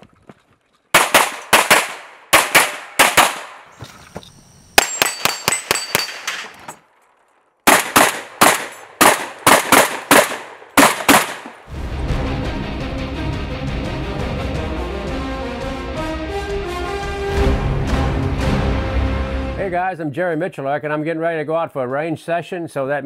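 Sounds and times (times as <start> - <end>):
rapid gunfire: 0.9 - 3.6, 7.7 - 11.6
steel targets ringing: 4.8 - 6.7
music: 11.7 - 19.7.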